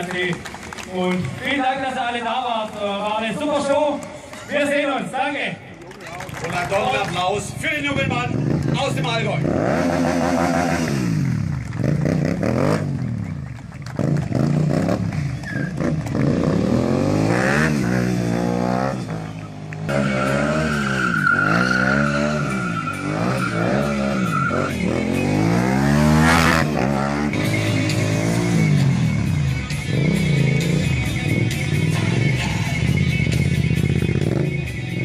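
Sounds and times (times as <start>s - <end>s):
motorcycle engine revving: 8.0s - 35.0s
tyre squeal: 15.3s - 15.8s, 19.9s - 25.4s.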